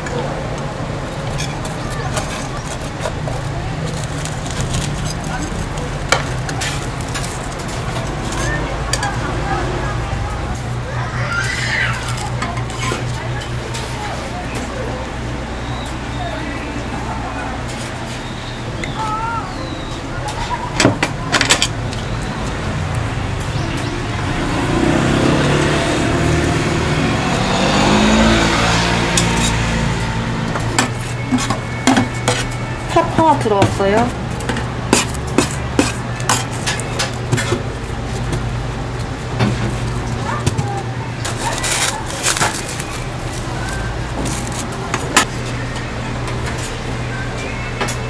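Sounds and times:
road traffic engine rumble: 0.0 - 48.0
street background noise: 0.0 - 48.0
tongs and paper cups clicking: 33.4 - 38.4.

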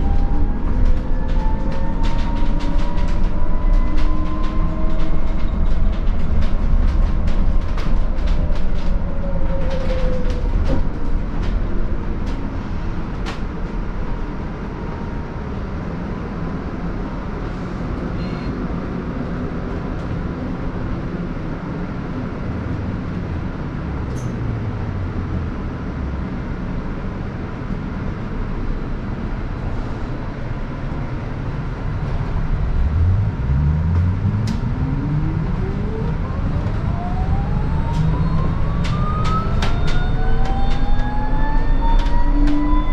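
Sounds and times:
road and tyre rumble: 0.0 - 42.9.

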